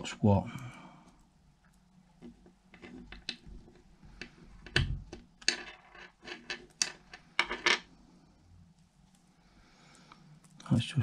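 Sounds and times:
small parts clicking on wood: 2.2 - 7.8.

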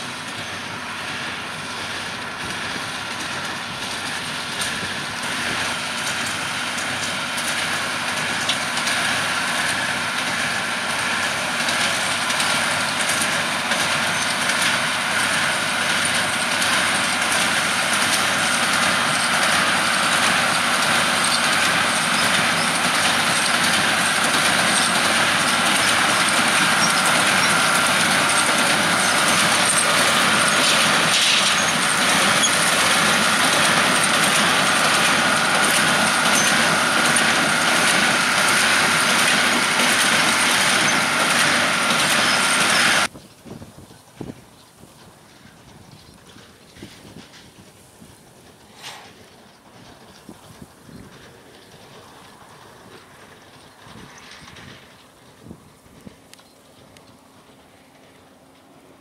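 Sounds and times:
baler mechanism running: 0.0 - 43.1
tractor diesel engine working: 0.0 - 59.0.

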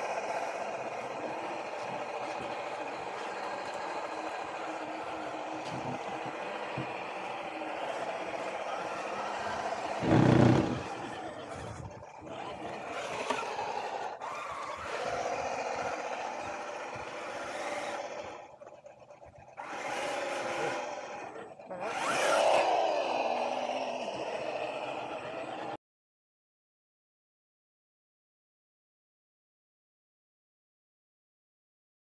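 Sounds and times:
electric motor and gearbox whining: 0.0 - 25.5.

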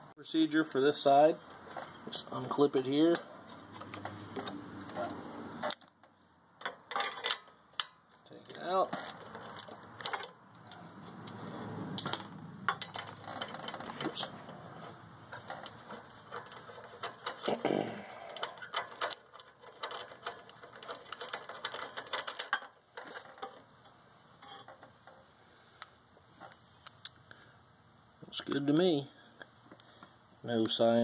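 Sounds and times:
tool-handling rattles: 1.0 - 11.4, 12.0 - 25.4.

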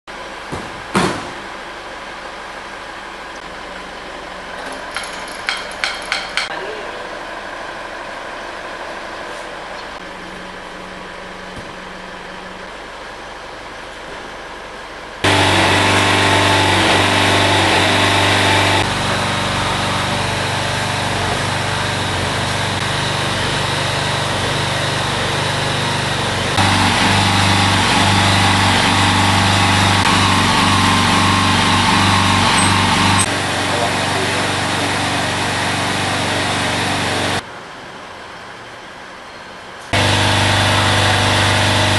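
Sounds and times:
small petrol engine running: 15.2 - 37.4, 39.9 - 41.9.

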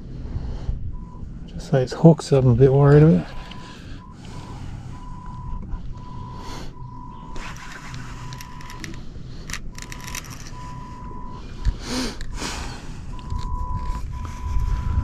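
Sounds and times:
sharp clicks: 7.3 - 10.8.

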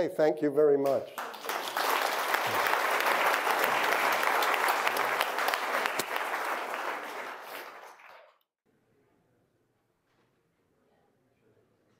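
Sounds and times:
audience applauding: 1.2 - 8.5.

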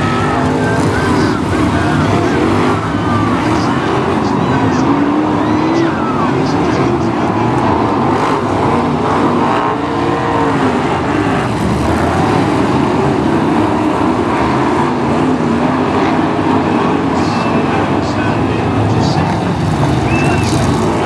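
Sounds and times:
race car engines revving: 0.0 - 21.0.

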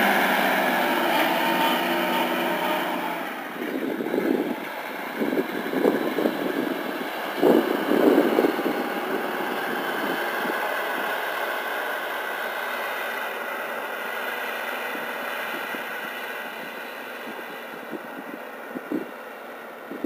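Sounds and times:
tractor diesel engine running: 0.0 - 20.0
wind gust on microphone: 3.6 - 11.2.

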